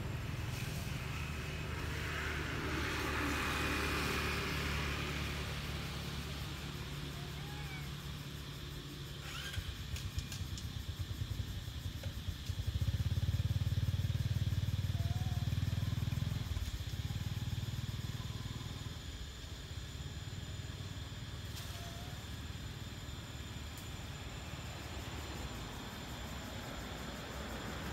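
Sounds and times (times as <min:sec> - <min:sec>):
vehicle driving past: 0:00.1 - 0:06.8.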